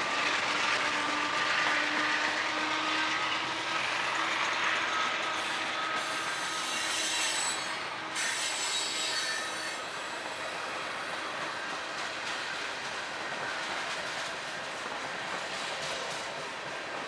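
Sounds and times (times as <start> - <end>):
train wheels rolling on rail: 0.0 - 17.0
high-pitched wheel squeal: 5.0 - 11.3.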